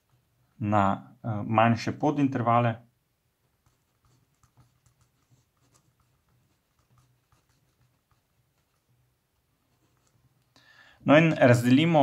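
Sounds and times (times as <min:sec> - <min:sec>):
pen scratching on paper: 0:03.4 - 0:10.3.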